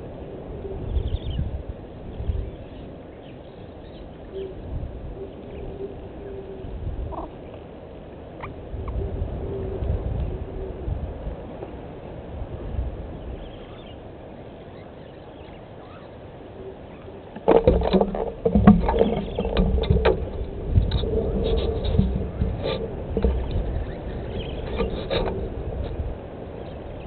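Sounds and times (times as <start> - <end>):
monkey handling microphone: 17.4 - 25.9
low rumble: 17.4 - 27.0.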